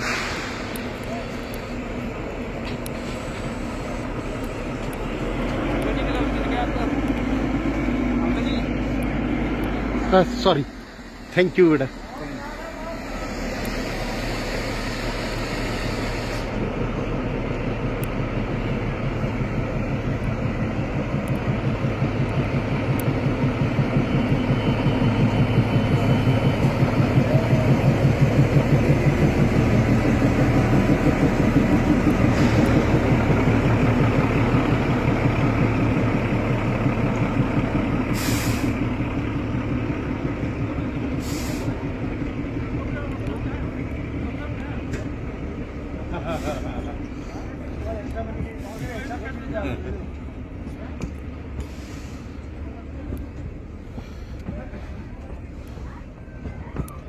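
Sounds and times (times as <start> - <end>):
air hiss: 0.0 - 1.0, 38.1 - 38.8, 41.2 - 41.8
diesel locomotive engine: 0.0 - 57.0
train coaches rolling: 0.0 - 57.0.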